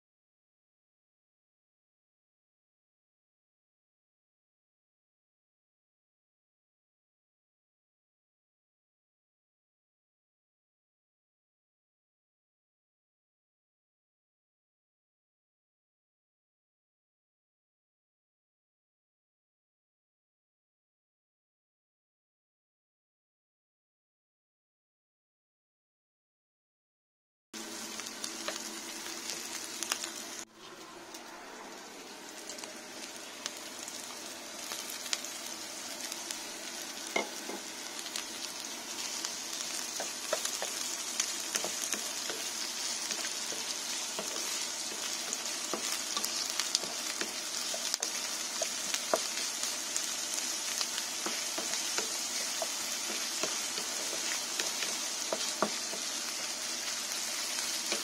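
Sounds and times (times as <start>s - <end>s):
onion and bacon sizzling: 27.6s - 58.0s
wooden spatula scraping: 50.6s - 58.0s.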